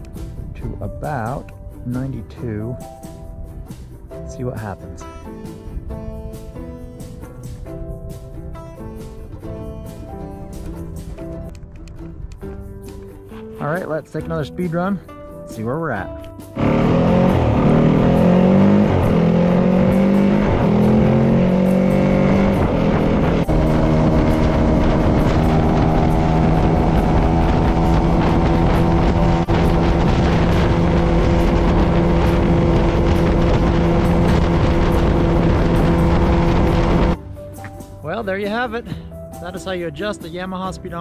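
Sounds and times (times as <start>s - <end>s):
rushing wind: 5.0s - 13.4s, 16.6s - 37.2s
motorcycle engine accelerating: 16.6s - 37.2s.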